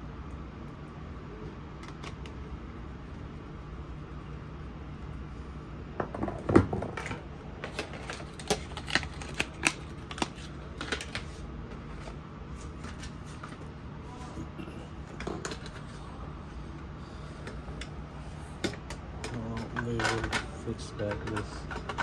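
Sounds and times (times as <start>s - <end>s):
low steady hum: 0.0s - 22.0s
hard drive clicks and clatter: 18.6s - 22.0s.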